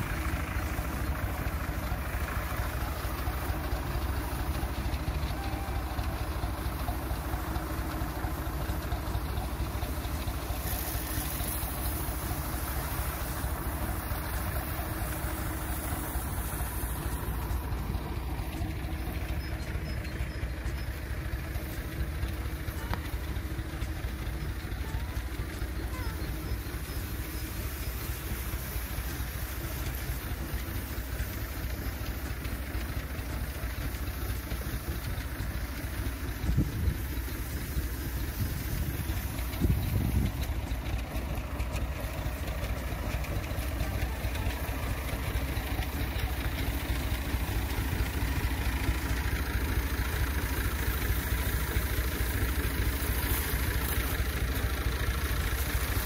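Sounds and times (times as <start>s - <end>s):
engine-driven pump running: 0.0s - 56.0s
spray mist hissing: 7.2s - 19.4s, 26.2s - 56.0s.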